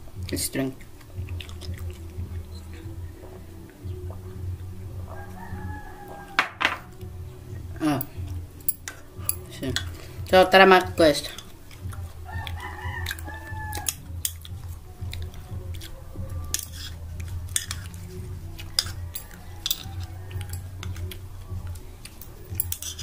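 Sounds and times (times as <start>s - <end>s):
chewing: 0.2s - 6.3s, 11.2s - 23.0s
utensil scraping a bowl: 16.4s - 21.2s, 22.0s - 23.0s.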